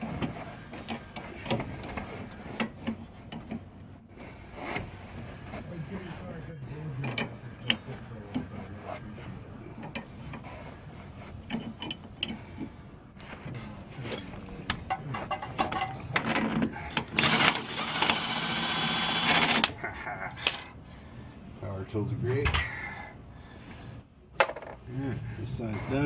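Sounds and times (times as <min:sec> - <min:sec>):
power ratchet spinning: 0:17.0 - 0:19.7.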